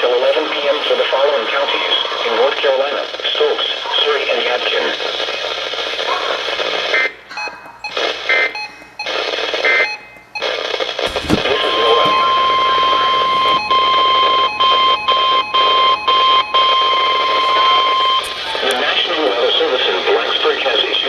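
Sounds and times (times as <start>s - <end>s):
radio static: 0.0s - 7.3s, 7.9s - 14.4s, 16.7s - 21.0s
steady alarm tone: 0.7s - 20.4s
thump: 11.1s - 12.3s.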